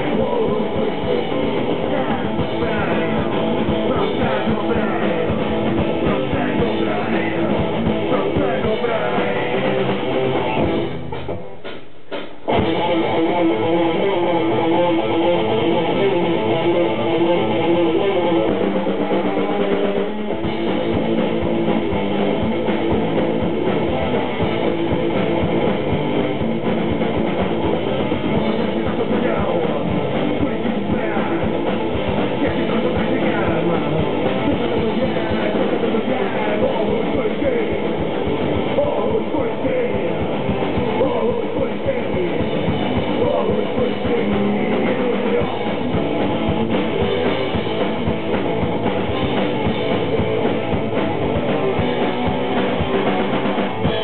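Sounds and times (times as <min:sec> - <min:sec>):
bass guitar: 0:00.0 - 0:54.0
drums: 0:00.0 - 0:54.0
electric guitars: 0:00.0 - 0:54.0.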